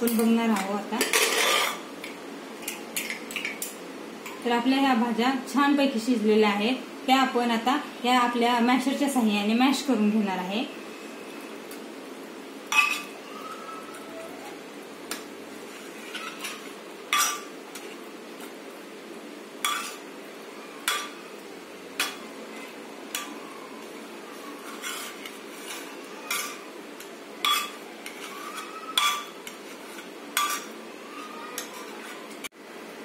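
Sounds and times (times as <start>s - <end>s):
soft squishing of vegetables: 22.1s - 32.5s.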